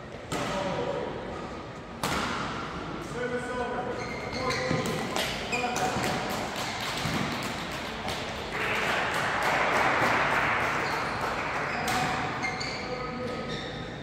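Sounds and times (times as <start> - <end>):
shoe squeaks on court floor: 3.9 - 6.0, 10.8 - 14.0
spectators clapping: 6.1 - 11.9.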